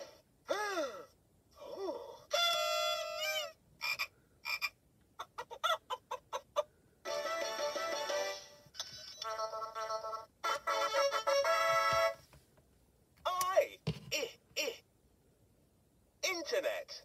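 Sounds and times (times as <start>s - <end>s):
toy electronic sound effects: 2.3s - 4.8s, 8.8s - 11.4s.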